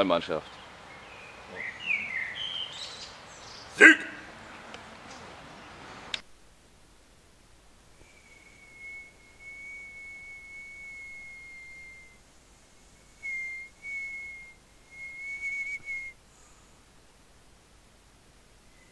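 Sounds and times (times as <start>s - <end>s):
person whistling: 8.0s - 12.2s, 13.2s - 16.1s.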